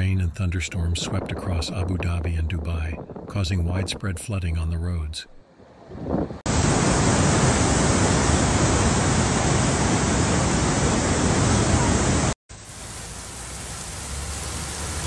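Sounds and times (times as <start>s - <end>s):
flood water rushing: 6.5s - 15.0s
heavy rain on flooded street: 6.5s - 15.0s.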